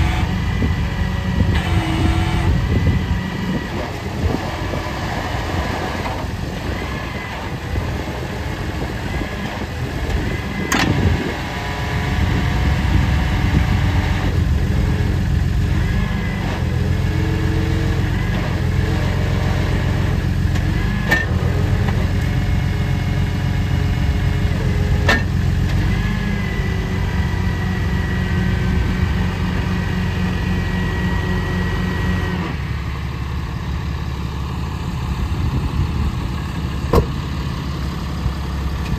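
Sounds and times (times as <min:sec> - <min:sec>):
hydraulic whine: 0:00.0 - 0:38.9
truck engine running: 0:00.0 - 0:38.9
sharp clunks: 0:36.9 - 0:37.2.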